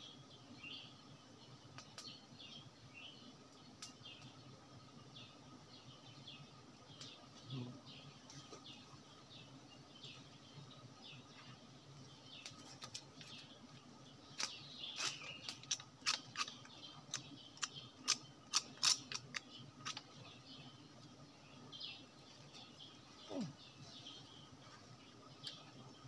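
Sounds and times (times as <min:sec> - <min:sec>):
faint bird chirps: 0:14.3 - 0:26.0.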